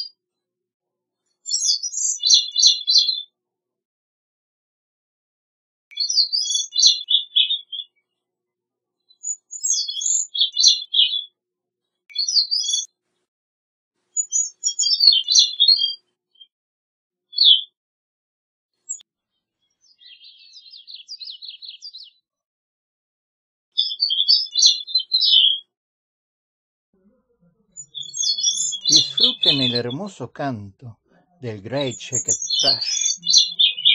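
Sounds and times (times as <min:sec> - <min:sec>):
rapid bird trill: 0:06.0 - 0:07.9, 0:27.7 - 0:30.2, 0:31.7 - 0:33.9
thrush singing: 0:27.9 - 0:33.9.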